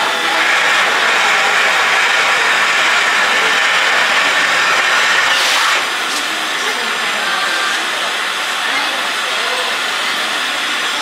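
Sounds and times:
steam locomotive hissing: 0.0 - 7.2.

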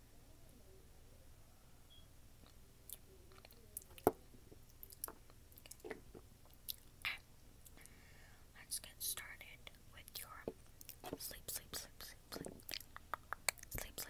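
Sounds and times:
mouth clicks: 12.3 - 13.9.

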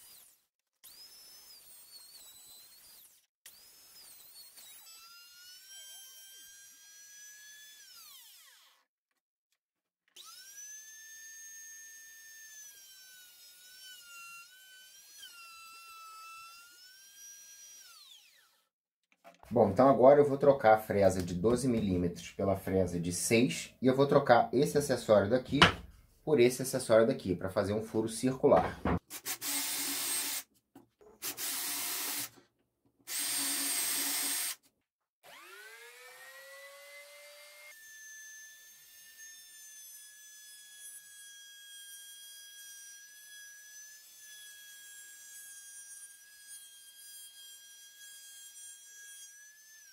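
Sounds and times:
router motor whine: 0.0 - 6.9, 10.2 - 18.6, 35.2 - 37.8
cordless drill boring into wood: 0.0 - 8.8, 10.2 - 18.7, 29.1 - 30.5, 31.2 - 32.4, 33.1 - 34.6, 35.2 - 37.8.

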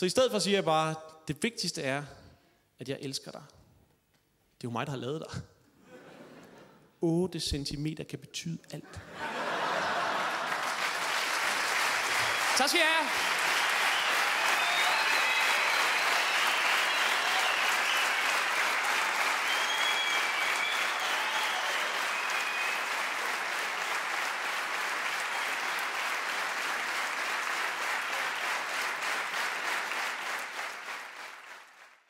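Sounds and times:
audience applauding: 9.3 - 32.0
high whistles: 13.5 - 23.1.

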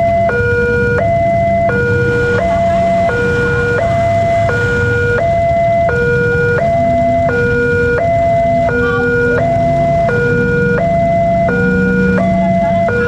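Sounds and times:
level crossing two-tone alarm: 0.0 - 13.0.

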